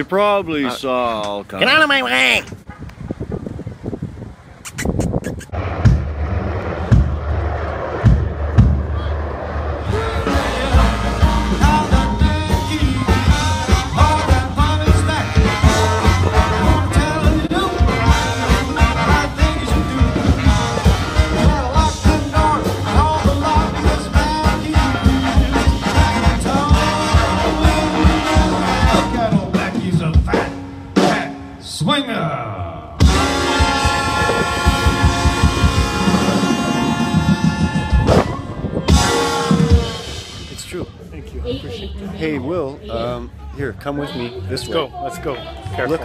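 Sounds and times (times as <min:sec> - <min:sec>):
swing band playing: 0:09.8 - 0:31.6, 0:33.0 - 0:45.9
man singing: 0:09.9 - 0:31.4.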